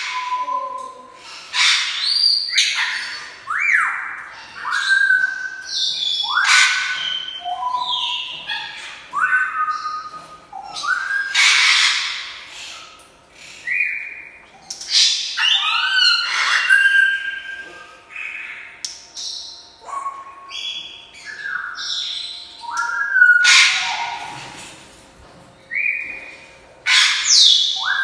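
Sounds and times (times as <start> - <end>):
parrot squawking: 1.5 - 9.9, 10.6 - 12.6, 14.9 - 17.6, 21.2 - 24.5, 26.8 - 28.0.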